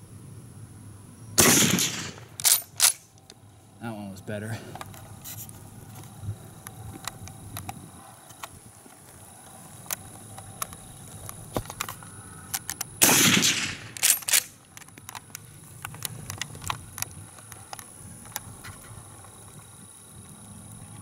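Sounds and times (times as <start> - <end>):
rifle shot: 1.4 - 3.0, 13.0 - 14.6
rifle bolt metallic clacks: 1.6 - 3.1, 12.5 - 15.2.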